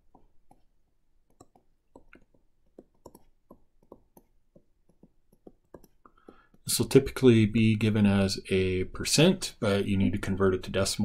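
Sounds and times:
stylus tapping on tablet: 0:00.0 - 0:06.7.

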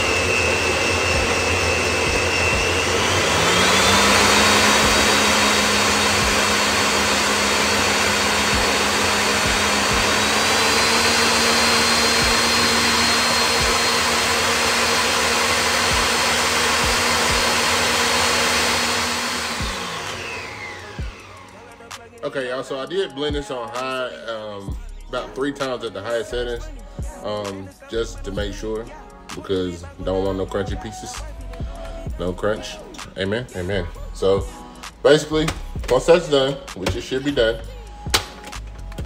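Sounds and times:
blender motor whining: 0:00.0 - 0:26.2.

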